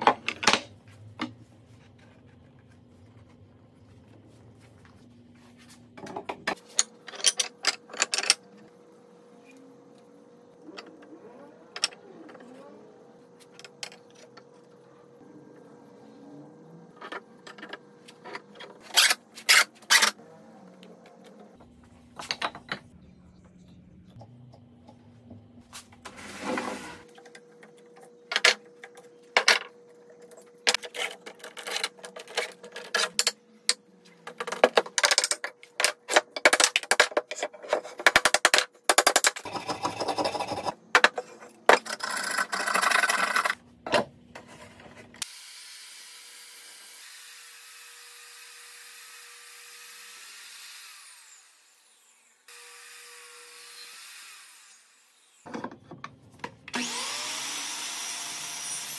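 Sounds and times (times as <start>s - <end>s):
clamps scraping: 17.0s - 20.2s, 28.3s - 38.6s.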